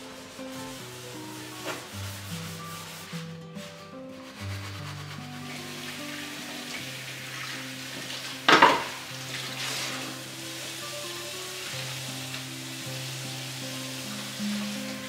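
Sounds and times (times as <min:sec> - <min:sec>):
soft background music: 0:00.0 - 0:15.0
water running into a sink: 0:05.5 - 0:15.0
water splash: 0:06.5 - 0:11.0.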